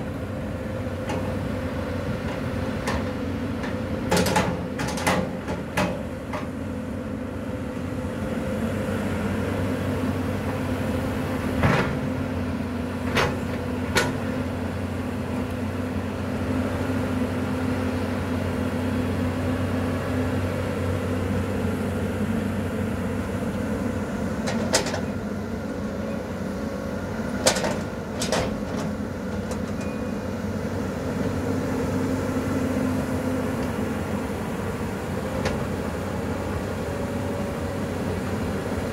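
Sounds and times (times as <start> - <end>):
excavator diesel engine droning: 0.0 - 38.9.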